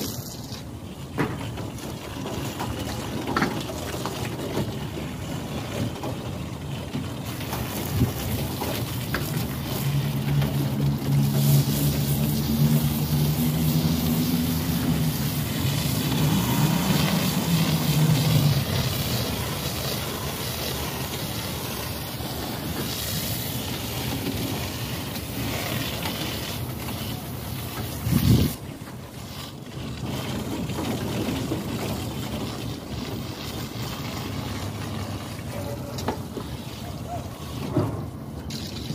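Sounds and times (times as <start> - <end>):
water spraying from a hose: 0.0 - 38.9
low machine drone: 7.4 - 22.9
wind on microphone: 27.8 - 28.7.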